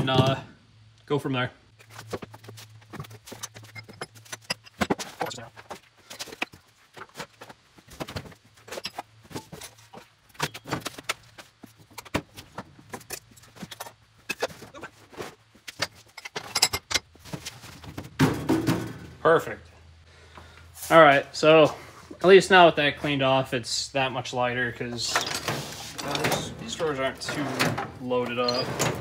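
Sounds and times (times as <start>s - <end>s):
metal tools clinking and clattering: 3.3s - 5.5s, 15.8s - 17.1s, 25.0s - 29.0s.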